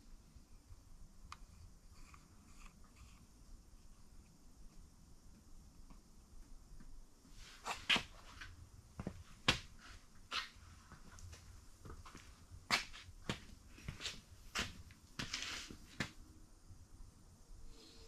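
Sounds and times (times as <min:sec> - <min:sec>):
short rustle: 0:13.8 - 0:16.1.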